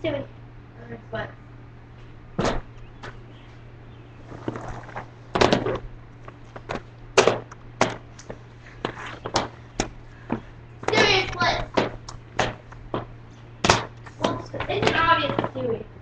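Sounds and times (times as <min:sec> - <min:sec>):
low steady hum: 0:00.0 - 0:16.0
sharp knocks and clacks: 0:06.6 - 0:15.6.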